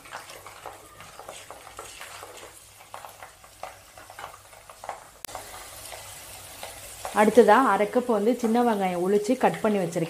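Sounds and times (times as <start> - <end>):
wooden spatula stirring: 0.0 - 7.4
garlic sizzling in oil: 0.0 - 10.0.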